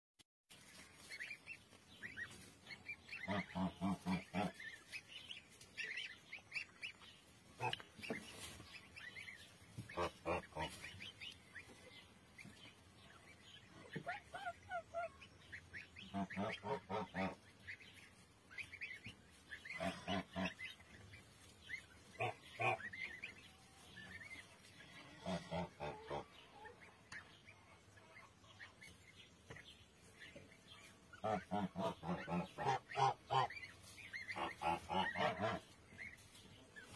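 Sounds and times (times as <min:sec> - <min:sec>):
goslings peeping: 0:00.5 - 0:36.9
goose calling: 0:03.0 - 0:05.0, 0:09.0 - 0:11.2, 0:13.9 - 0:17.8, 0:31.1 - 0:36.1.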